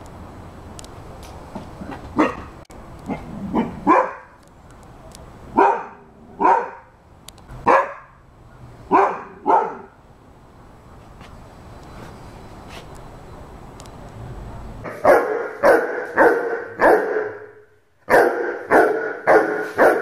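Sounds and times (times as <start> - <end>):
dog barking: 2.2 - 2.5, 3.1 - 4.3, 5.6 - 6.9, 7.6 - 8.2, 8.9 - 9.9, 14.9 - 17.5, 18.1 - 20.0.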